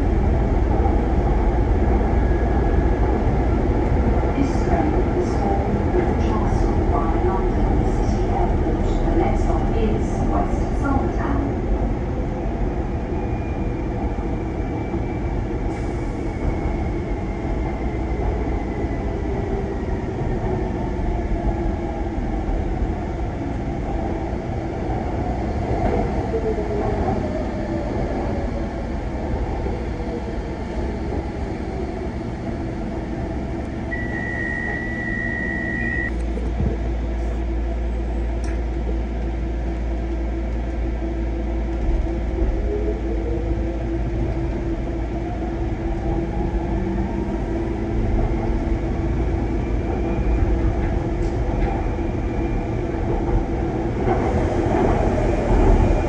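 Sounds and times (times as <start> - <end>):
steady beep: 33.9 - 36.2.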